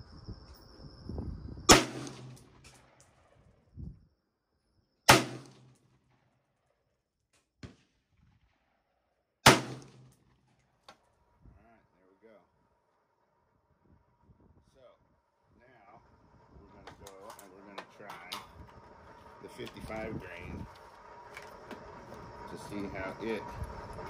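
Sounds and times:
rifle shots: 1.7s - 3.4s, 5.1s - 5.7s, 9.4s - 10.2s.

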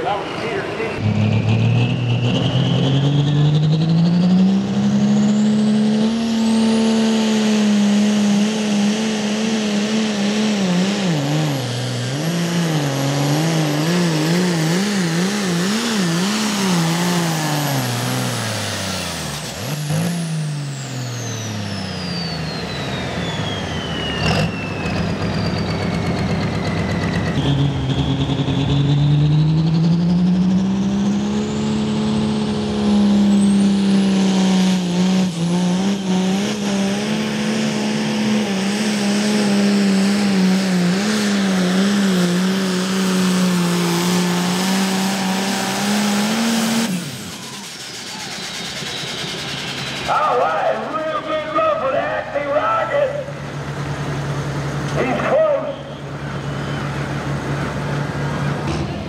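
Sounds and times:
another tractor engine building: 0.0s - 59.0s
tractor diesel engine at full power: 0.0s - 59.0s
high whistle: 21.8s - 26.0s, 47.1s - 50.1s, 55.6s - 57.0s.

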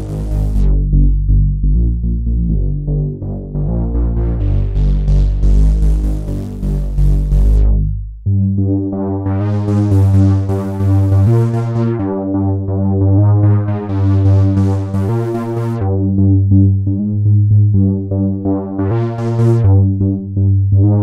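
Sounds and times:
synthesizer bass notes: 0.0s - 21.0s.

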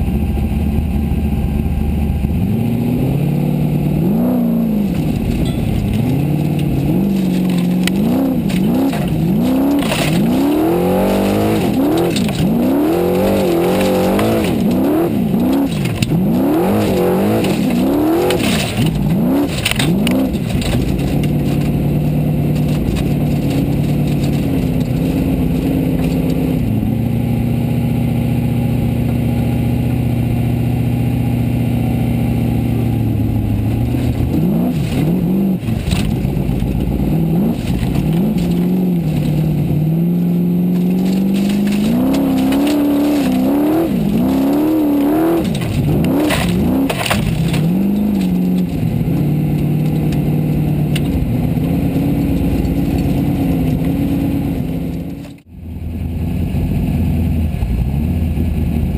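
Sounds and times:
buggy engine revving: 0.0s - 58.9s
sharp knocks and clatter: 4.8s - 26.6s, 33.9s - 55.5s.

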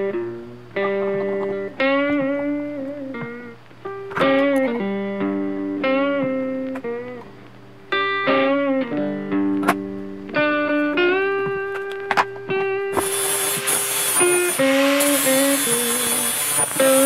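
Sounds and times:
electric guitar notes and chords: 0.0s - 17.0s.

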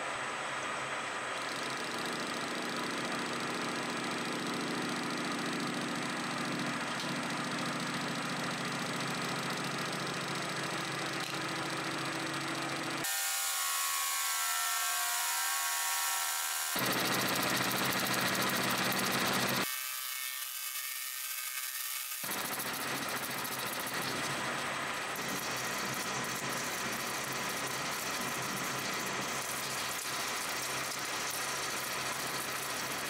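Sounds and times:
metal lathe cutting: 1.6s - 33.0s.

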